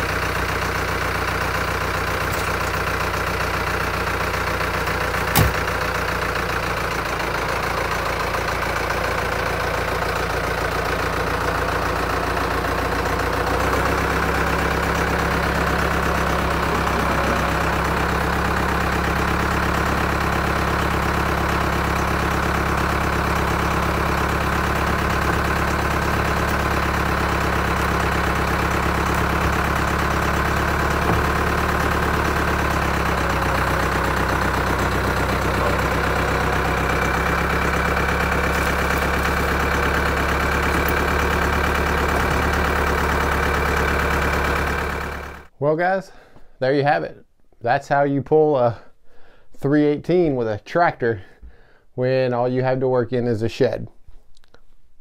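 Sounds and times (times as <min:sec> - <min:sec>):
tractor engine idling: 0:00.0 - 0:45.5
sharp metallic clank: 0:05.3 - 0:05.7.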